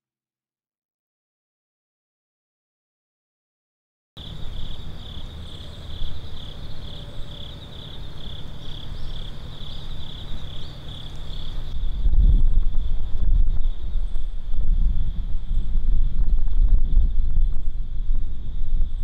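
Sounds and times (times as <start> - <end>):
insects chirping: 4.2 - 19.0
low background rumble: 4.2 - 19.0
wind buffeting microphone: 10.0 - 19.0.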